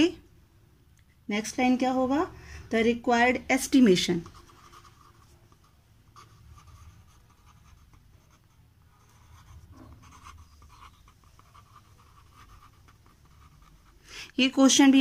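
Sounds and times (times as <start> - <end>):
pen scratching on paper: 3.7 - 14.8.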